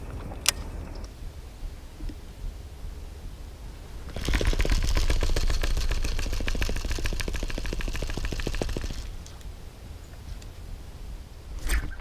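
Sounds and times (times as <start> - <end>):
fishing reel clicking whir: 4.1 - 9.1.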